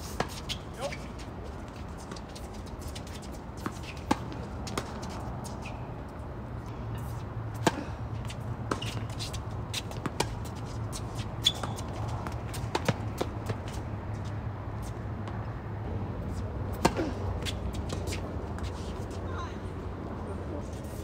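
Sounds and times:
tennis ball bouncing: 3.0s - 5.8s, 7.0s - 13.9s, 16.7s - 18.7s
rackets striking tennis ball: 7.6s - 13.8s.

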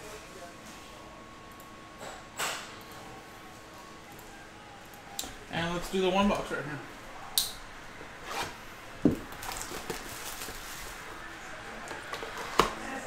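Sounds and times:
cardboard and plastic wrap rustling: 9.0s - 11.2s.

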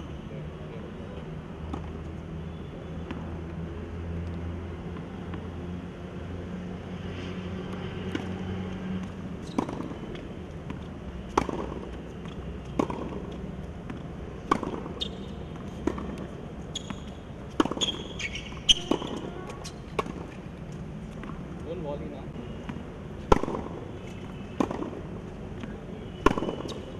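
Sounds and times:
tennis racket striking ball: 10.7s - 12.0s, 12.7s - 20.4s, 23.2s - 23.8s, 24.6s - 25.0s, 26.2s - 26.8s
ball bouncing: 10.7s - 20.4s.

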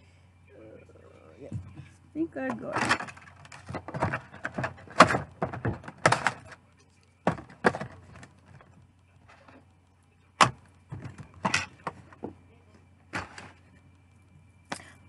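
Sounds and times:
items being packed into a box: 7.2s - 8.7s.

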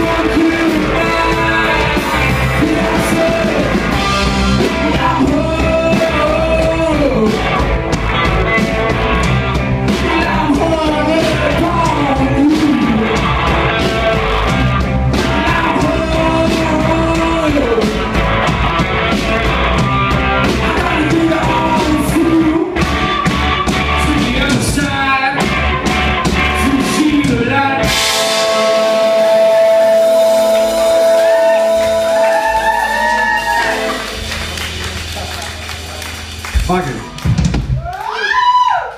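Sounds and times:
person singing: 0.0s - 7.7s, 9.9s - 14.4s, 15.1s - 18.2s, 20.4s - 23.2s, 23.9s - 34.1s
electric guitars: 0.0s - 38.8s
bass guitar: 0.0s - 38.9s
drums: 0.0s - 38.9s.

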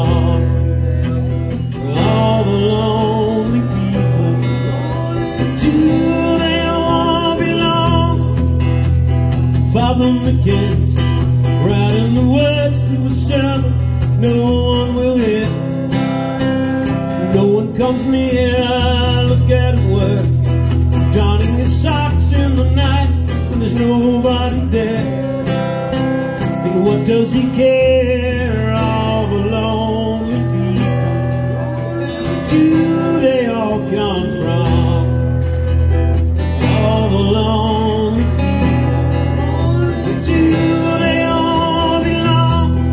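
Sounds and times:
acoustic guitars strummed: 0.0s - 42.9s
drums: 0.0s - 42.9s
electric bass: 0.0s - 42.9s
flute playing: 29.7s - 36.1s.

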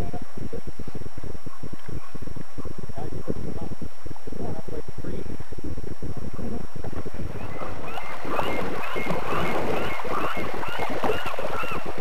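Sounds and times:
geese honking: 7.4s - 11.8s.

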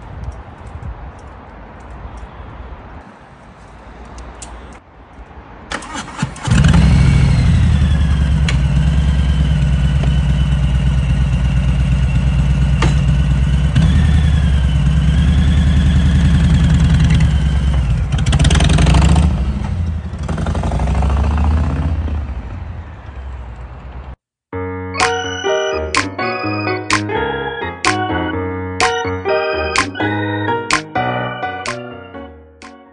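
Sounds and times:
motorcycle engine idling and revving: 5.8s - 23.6s.

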